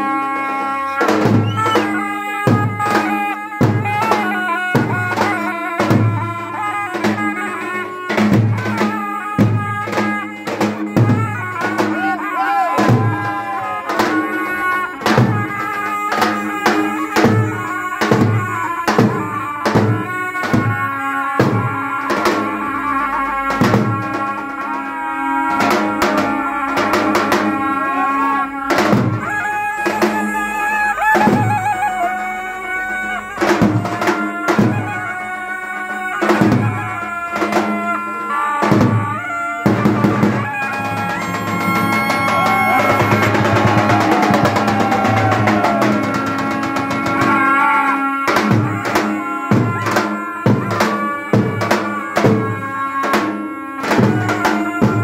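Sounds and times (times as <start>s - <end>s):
shawms playing piercing melody: 0.0s - 55.0s
bass drum beating: 38.7s - 47.4s.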